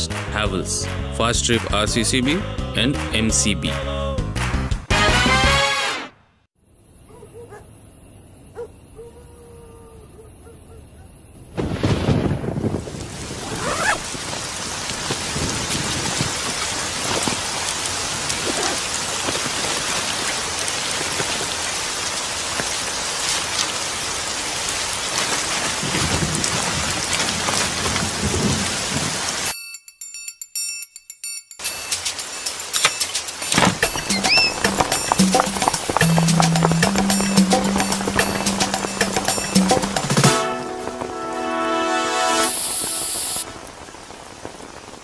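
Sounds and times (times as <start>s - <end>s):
thunder: 11.5s - 17.4s, 25.5s - 29.2s
heavy rain pouring: 11.6s - 29.5s, 31.6s - 45.0s.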